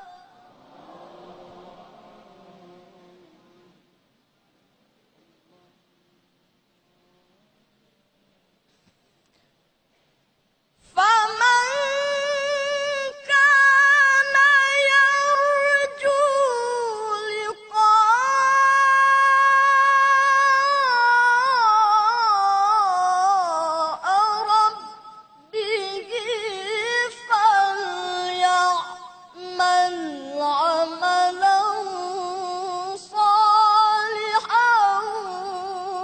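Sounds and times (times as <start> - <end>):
boy reciting melodically: 0.0 - 0.5, 10.8 - 36.0.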